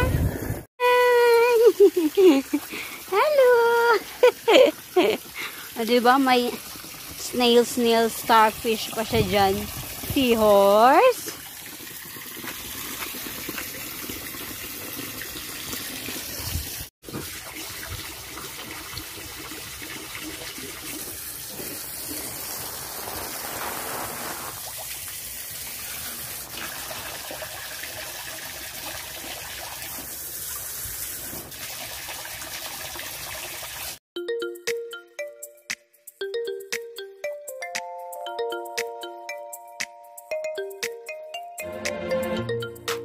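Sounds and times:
hose water splashing into pool: 1.3 - 34.0.

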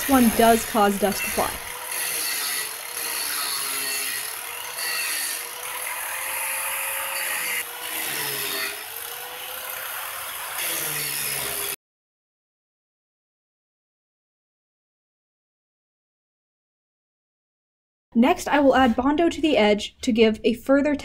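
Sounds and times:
angle grinder grinding: 0.0 - 11.8.

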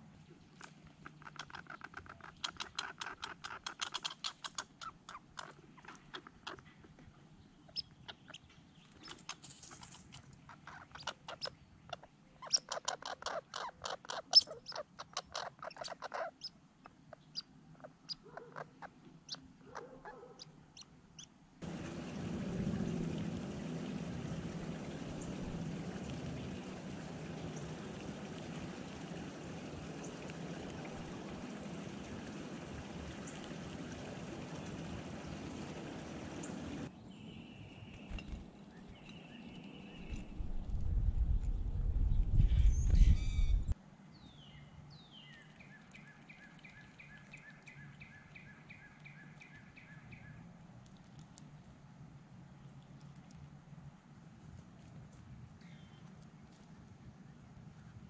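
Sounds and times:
squirrel chattering: 1.0 - 7.0, 10.5 - 19.4.

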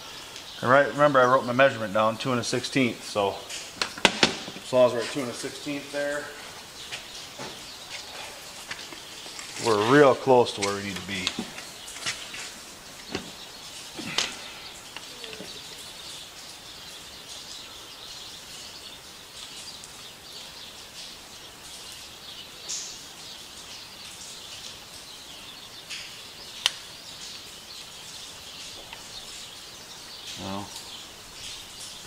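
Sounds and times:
birds chirping: 0.0 - 32.0.

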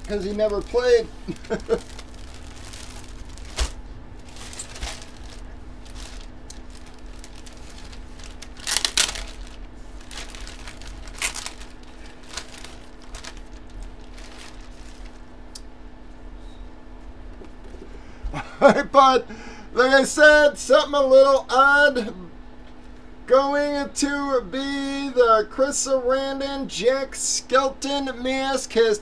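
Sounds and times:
plastic bag crinkling: 0.0 - 15.4.

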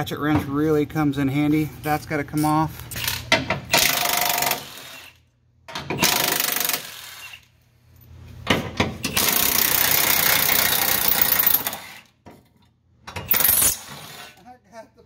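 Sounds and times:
power ratchet running: 9.1 - 11.8.

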